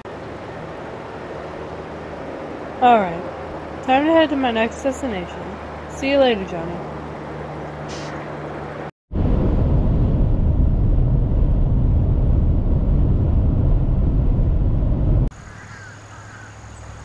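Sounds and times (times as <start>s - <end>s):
road and wind noise: 0.0s - 17.0s
car driving rumble: 9.2s - 15.3s.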